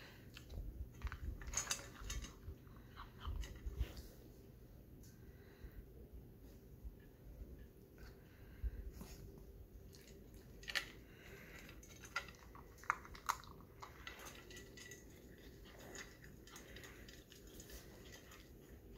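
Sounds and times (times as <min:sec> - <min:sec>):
puppy crunching food: 0:00.2 - 0:04.1, 0:09.3 - 0:18.9.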